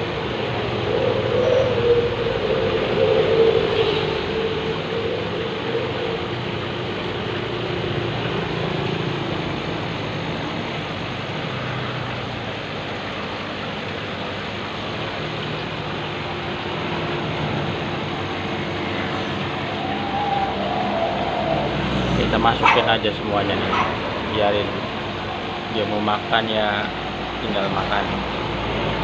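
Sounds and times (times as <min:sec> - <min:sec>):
aquarium water bubbling: 0:00.0 - 0:29.0
wavering tone: 0:18.2 - 0:23.0.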